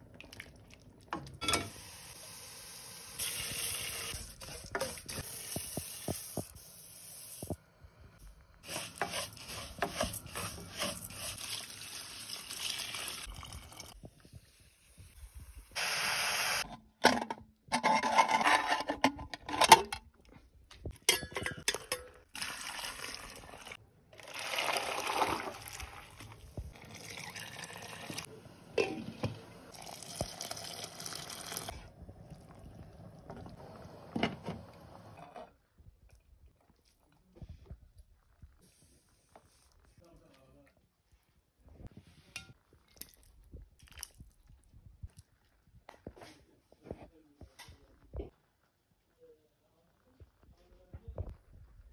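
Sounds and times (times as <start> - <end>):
frying: 1.5 - 7.6, 8.6 - 13.7
pressure cooker steaming: 15.8 - 16.6
metal lids clattering: 17.0 - 20.0.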